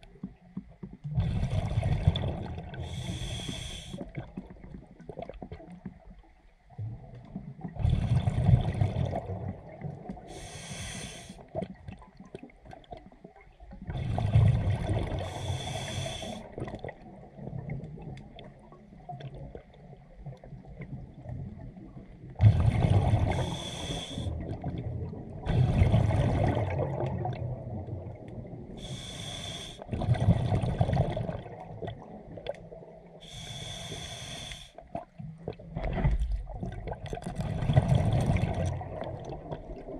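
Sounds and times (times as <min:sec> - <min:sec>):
regulator inhale hiss: 0:02.8 - 0:04.2, 0:10.3 - 0:11.5, 0:15.2 - 0:16.6, 0:23.3 - 0:24.4, 0:28.8 - 0:29.9, 0:33.2 - 0:34.8
exhaust bubbles rumbling: 0:21.2 - 0:23.6, 0:24.2 - 0:28.8, 0:35.5 - 0:39.9.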